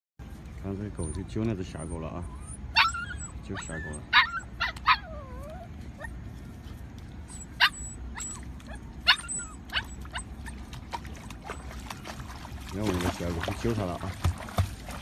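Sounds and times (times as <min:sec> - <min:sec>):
dog yelping and whining: 0:01.0 - 0:06.2, 0:07.3 - 0:12.2.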